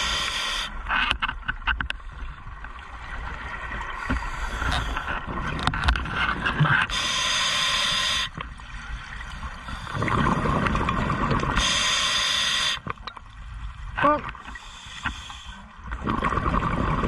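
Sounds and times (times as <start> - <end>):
regulator inhale hiss: 0.0 - 0.8, 6.9 - 8.4, 11.6 - 12.9, 14.5 - 15.7
exhaled bubbles underwater: 8.6 - 11.9, 15.9 - 17.0.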